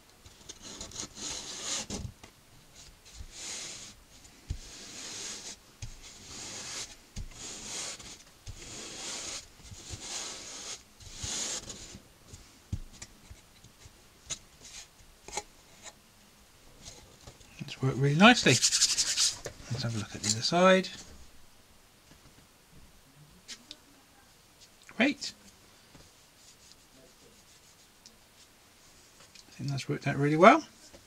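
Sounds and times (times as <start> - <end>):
palms swishing on cloth: 2.7 - 13.4.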